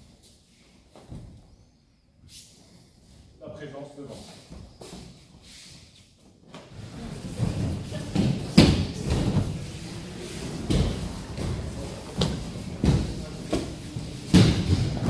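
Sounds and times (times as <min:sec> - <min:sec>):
bodies thudding on mats: 0:07.2 - 0:09.8, 0:10.5 - 0:15.0.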